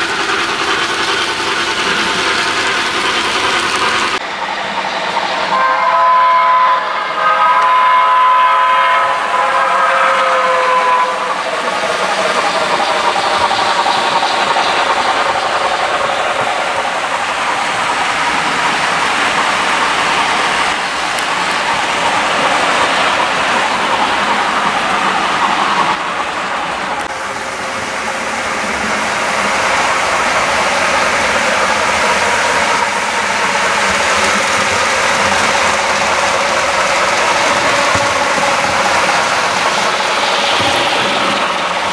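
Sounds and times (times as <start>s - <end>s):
model train rolling on track: 0.0s - 41.9s
model locomotive whistle chord: 5.5s - 11.4s.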